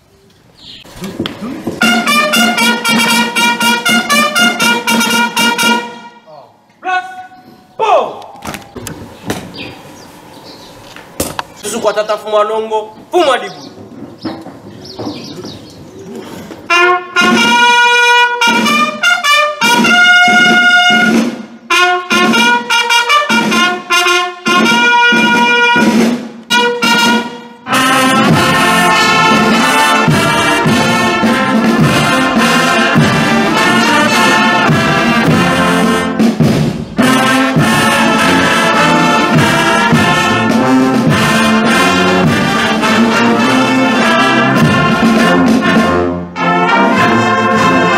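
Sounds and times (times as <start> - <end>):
lone brass call: 1.8 - 6.3, 16.7 - 36.2, 37.0 - 47.9
brass band playing: 1.8 - 6.4, 16.6 - 47.9.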